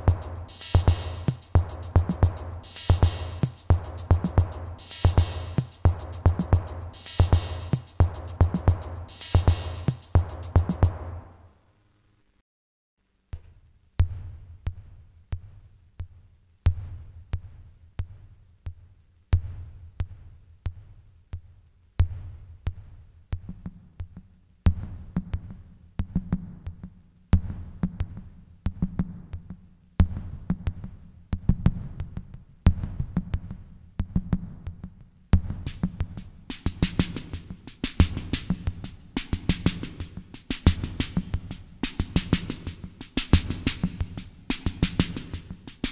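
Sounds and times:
higher drum voice: 0.0s - 11.0s
hi-hat-like hiss: 0.0s - 11.4s, 35.2s - 45.9s
drum machine bass drum beat: 0.0s - 11.5s, 14.0s - 45.9s.

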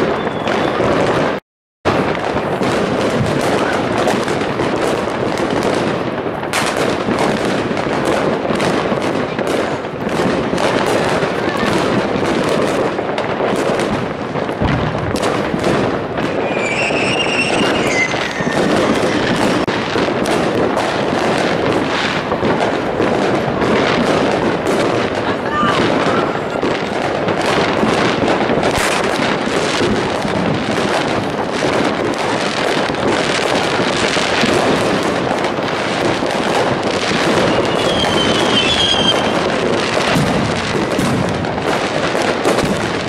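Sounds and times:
high firework whistle: 0.0s - 1.1s, 16.2s - 19.7s, 37.2s - 39.4s
fireworks and firecrackers banging: 0.0s - 43.0s.

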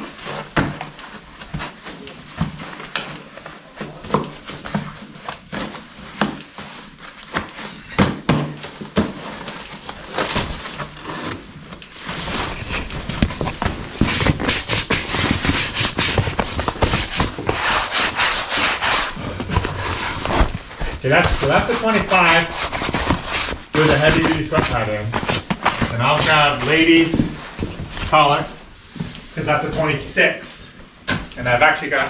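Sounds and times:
collar rubbing against camera: 13.9s - 26.6s.

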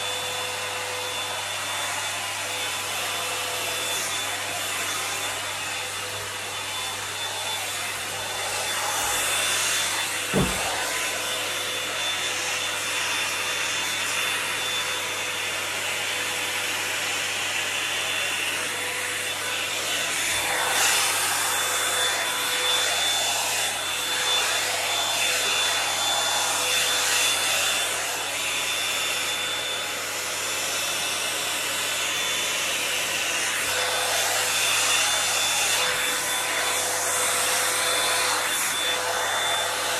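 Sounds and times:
hot-air brush blowing and whining: 0.0s - 39.9s
short knock: 10.3s - 10.7s.

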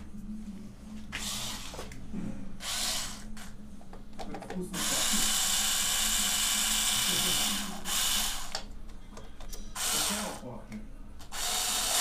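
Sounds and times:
power tool whirring: 1.2s - 1.9s, 2.6s - 3.3s, 4.8s - 8.6s, 9.8s - 10.4s, 11.3s - 12.0s.

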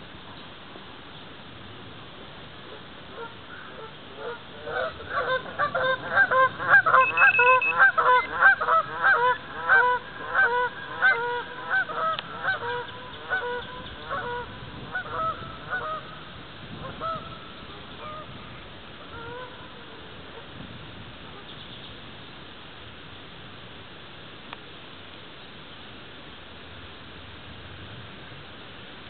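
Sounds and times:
geese honking: 3.1s - 16.1s, 16.8s - 17.4s, 18.0s - 18.3s, 19.1s - 20.1s.

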